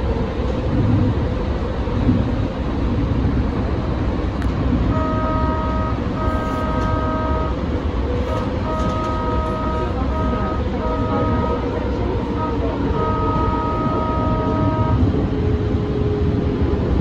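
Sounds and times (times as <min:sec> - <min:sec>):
train rumbling on rails: 0:00.0 - 0:17.0
tram horn blasts: 0:04.5 - 0:16.2.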